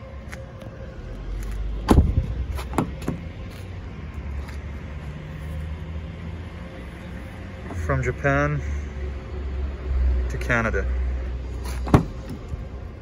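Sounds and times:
wind rumble on microphone: 0:01.1 - 0:03.5
car door shutting: 0:01.8 - 0:03.2, 0:11.7 - 0:12.5.

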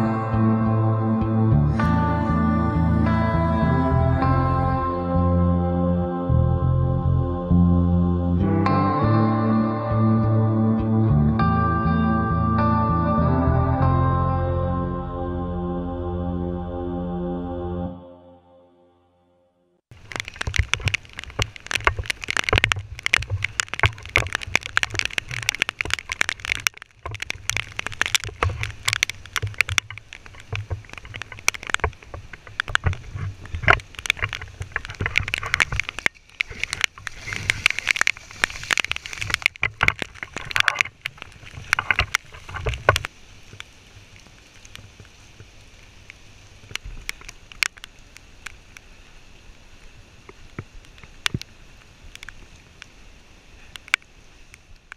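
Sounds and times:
splashing water: 0:19.9 - 0:48.8
rain hiss: 0:19.9 - 0:54.9.

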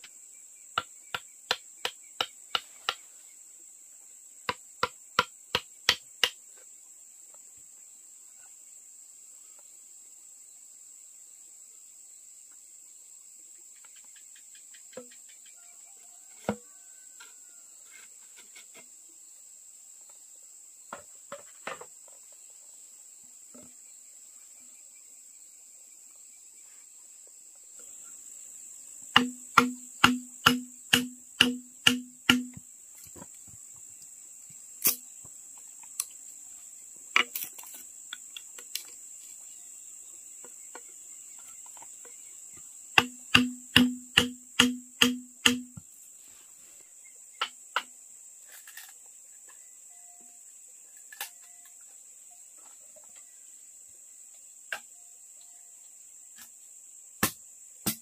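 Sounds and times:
crickets chirring: 0:00.0 - 0:58.0
hard striking knocks with hollow ring: 0:29.2 - 0:32.6, 0:43.0 - 0:45.8, 0:57.2 - 0:58.0.

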